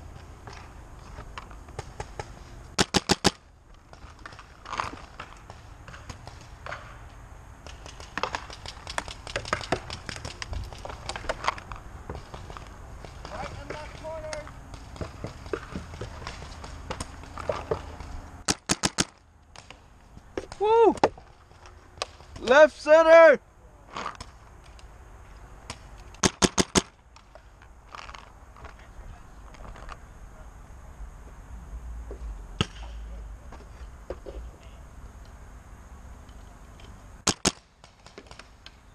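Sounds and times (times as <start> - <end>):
paintball marker shots: 1.7 - 3.4, 18.4 - 19.8, 25.6 - 27.3, 37.2 - 38.5.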